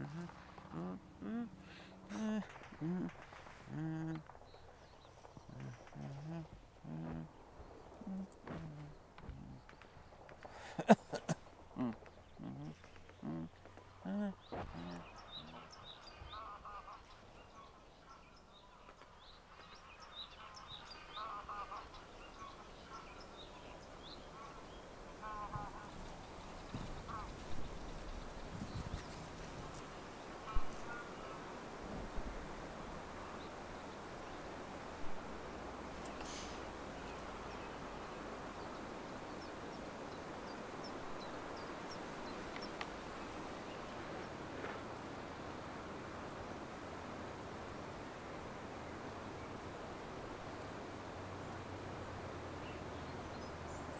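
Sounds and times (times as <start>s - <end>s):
lower bird calls: 0.0s - 45.4s
birds chirping: 0.0s - 46.7s
open air hiss: 0.0s - 53.9s.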